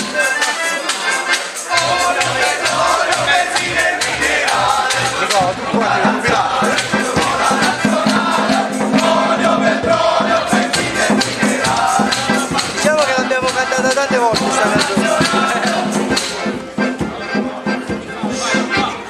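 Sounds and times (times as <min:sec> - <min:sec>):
rattling percussion: 0:00.0 - 0:19.0
men singing in chorus: 0:01.7 - 0:16.5.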